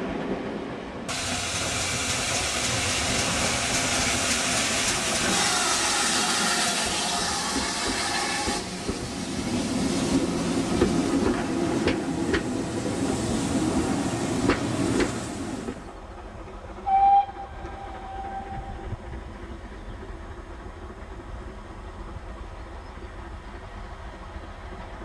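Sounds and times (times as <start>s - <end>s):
steam locomotive hissing: 1.1s - 19.6s
distant steam whistle: 5.2s - 8.7s, 16.8s - 19.0s
coaches clicking over rail joints: 6.8s - 9.2s, 10.1s - 13.2s, 14.3s - 17.0s.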